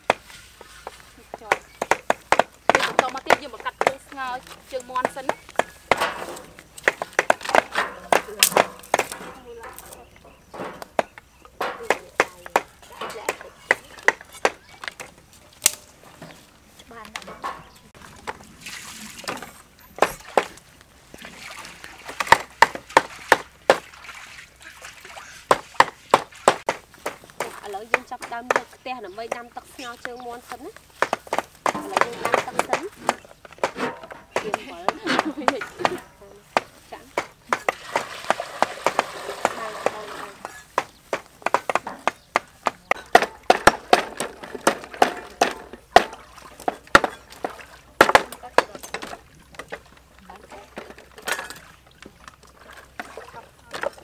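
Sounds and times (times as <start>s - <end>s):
cleaver chopping on wooden board: 1.4s - 4.0s, 5.0s - 10.0s, 10.6s - 15.8s, 22.2s - 23.9s, 25.5s - 29.4s, 31.0s - 49.2s.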